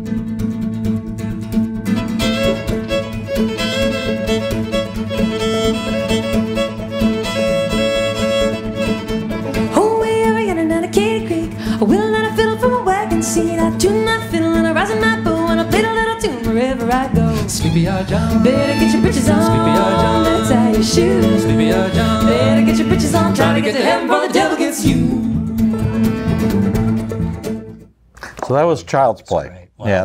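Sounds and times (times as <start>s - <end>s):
strummed acoustic guitar: 0.0s - 28.0s
cello: 1.5s - 27.8s
fiddles: 1.9s - 28.4s
upright bass: 2.2s - 23.8s, 24.7s - 28.6s
woman singing: 9.5s - 25.5s.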